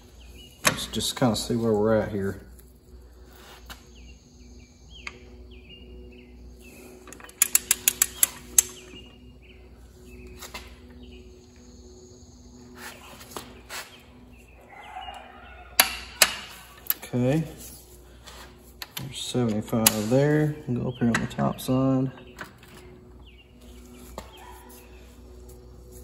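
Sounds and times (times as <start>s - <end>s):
torque wrench clicking: 7.1s - 8.8s.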